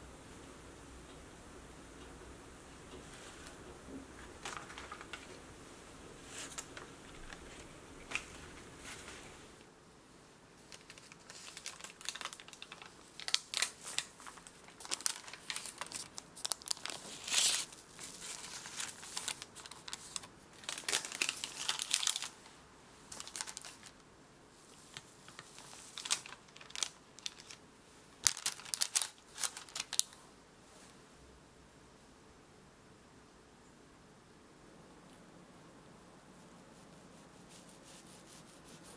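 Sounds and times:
parchment paper crinkling and tearing: 4.2 - 5.4, 6.3 - 9.4, 10.6 - 22.5, 23.1 - 24.0, 24.7 - 27.6, 28.2 - 30.2.

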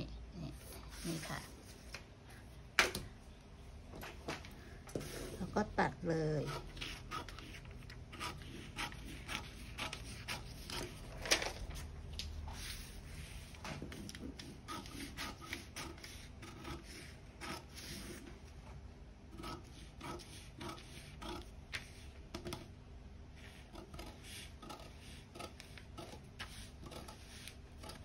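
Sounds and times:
scissors snipping paper: 6.4 - 11.7, 23.7 - 28.0
paper rustling: 10.7 - 14.4.

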